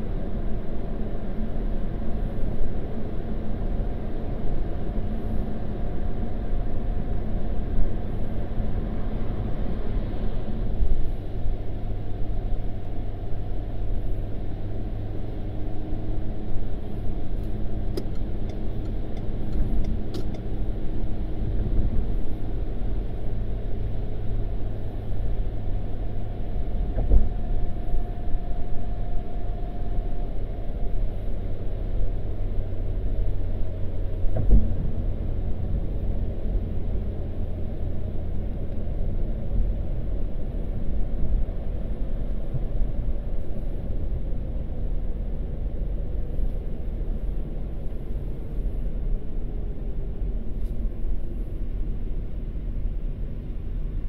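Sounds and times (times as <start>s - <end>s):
car cabin road rumble: 0.0s - 54.0s.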